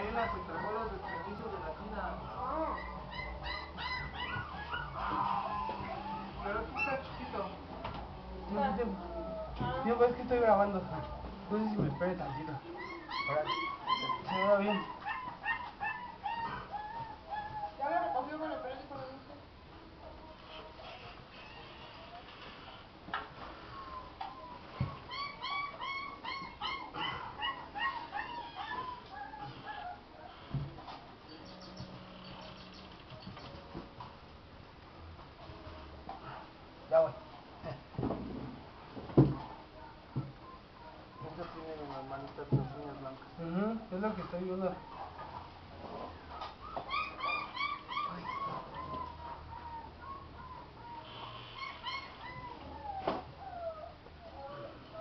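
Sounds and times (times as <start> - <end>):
puppy yipping: 0.0 - 7.8, 11.7 - 19.3, 23.6 - 30.5, 46.1 - 55.0
puppy whining: 0.0 - 34.1, 39.2 - 55.0
soft thump: 38.0 - 39.5.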